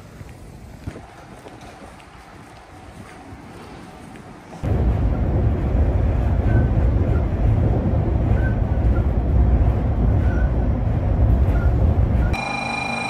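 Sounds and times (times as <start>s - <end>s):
train rumbling: 1.0s - 12.8s.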